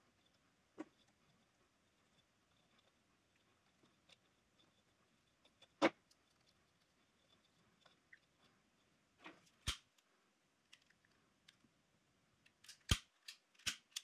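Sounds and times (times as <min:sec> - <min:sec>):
clicks of wire connectors: 0:12.4 - 0:14.0.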